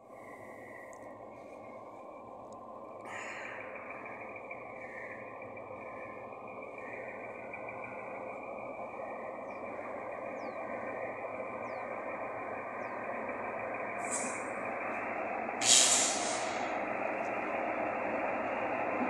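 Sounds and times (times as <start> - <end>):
locomotive engine drone: 0.0 - 19.0
hiss of released air: 14.0 - 14.5, 15.6 - 16.7.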